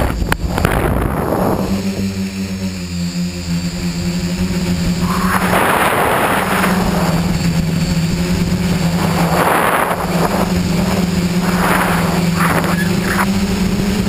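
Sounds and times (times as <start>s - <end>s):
drone motors humming: 0.0s - 14.0s
rushing air noise: 4.4s - 14.0s.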